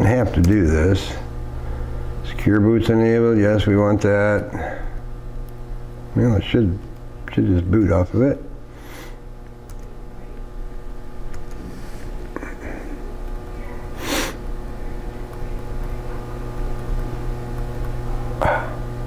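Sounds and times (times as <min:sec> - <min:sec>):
electrical hum: 0:00.0 - 0:19.0
man breathy noise: 0:12.3 - 0:14.4, 0:18.3 - 0:18.9
man murmuring: 0:18.2 - 0:18.9.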